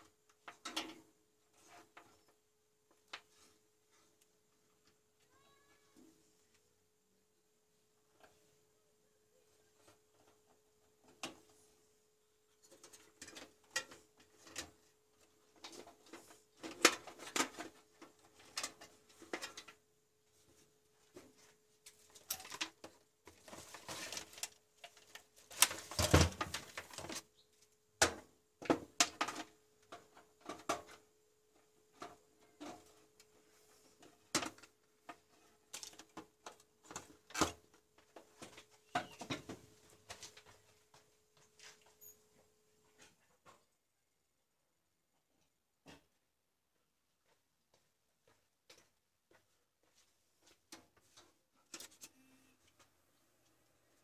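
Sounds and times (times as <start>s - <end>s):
cable handling clicks and rustles: 21.8s - 27.3s.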